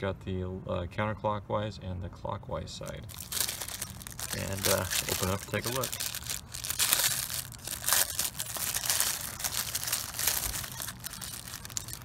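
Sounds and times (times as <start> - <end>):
plastic bag crinkling: 2.9 - 12.0.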